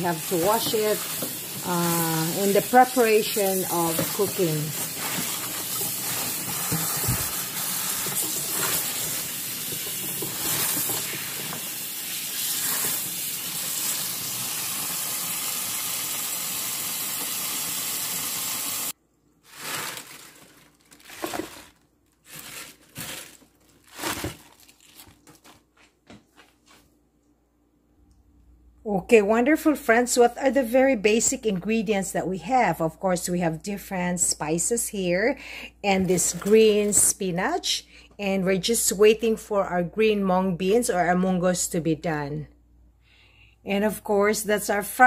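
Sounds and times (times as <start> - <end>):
tap water running into a sink: 0.0 - 18.9
wet leaves rustling: 19.4 - 25.3.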